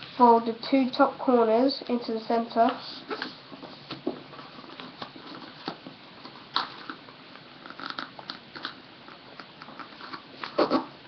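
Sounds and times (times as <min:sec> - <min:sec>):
paper crinkling and rustling: 0:03.1 - 0:07.0.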